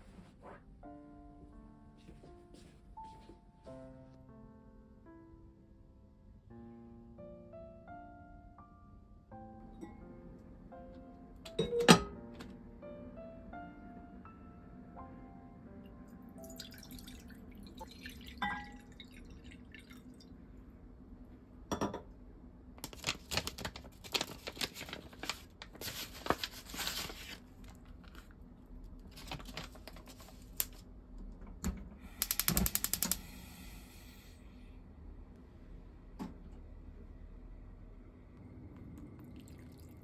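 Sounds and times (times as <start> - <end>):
water pouring into pot: 16.4 - 20.2, 39.2 - 40.0
plastic packet crinkling: 22.8 - 28.4, 29.0 - 30.8
rapid clicking: 32.2 - 33.2.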